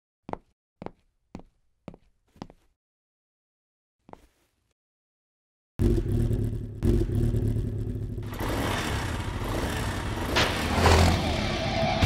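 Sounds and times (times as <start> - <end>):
motorcycle engine revving: 5.8 - 12.0.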